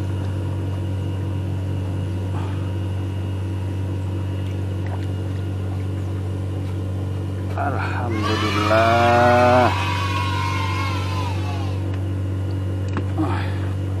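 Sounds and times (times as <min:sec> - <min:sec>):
small engine humming: 0:07.8 - 0:12.1.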